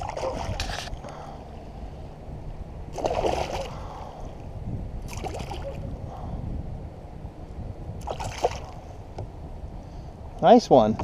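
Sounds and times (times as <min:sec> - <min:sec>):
fish thrashing and splashing: 0:00.0 - 0:00.8, 0:03.0 - 0:03.8, 0:08.0 - 0:08.8
steady low rumble: 0:00.0 - 0:11.0.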